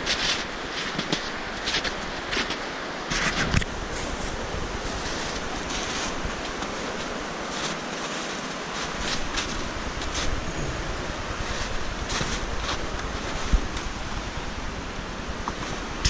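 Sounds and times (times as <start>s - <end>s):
steady rushing hiss: 0.0s - 16.0s
boots crunching through snow: 3.3s - 14.0s.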